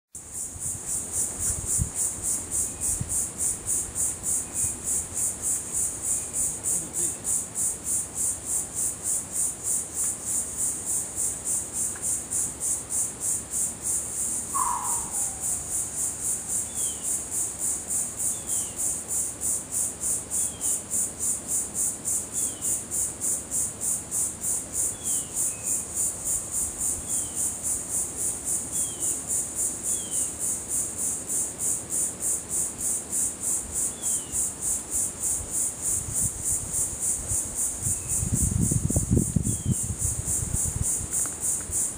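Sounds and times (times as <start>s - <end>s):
insects buzzing: 0.2s - 41.9s
wind rumble on microphone: 0.5s - 3.7s, 35.9s - 41.9s
faint downward chirps: 14.6s - 15.9s
lower longer downward call: 14.6s - 16.0s.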